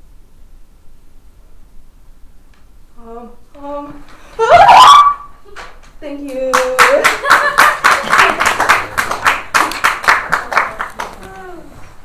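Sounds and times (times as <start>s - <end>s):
audience applauding: 6.3s - 11.6s.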